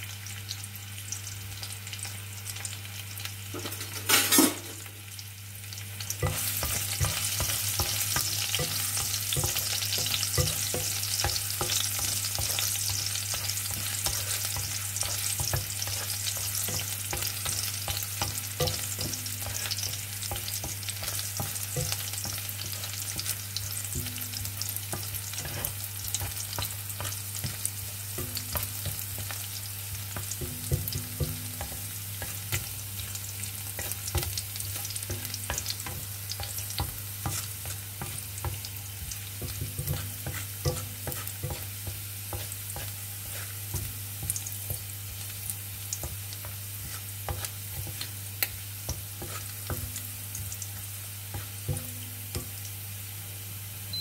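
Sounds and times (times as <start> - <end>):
garlic sizzling in oil: 0.0 - 54.0
spatula scraping a pan: 6.2 - 50.6, 51.2 - 52.5.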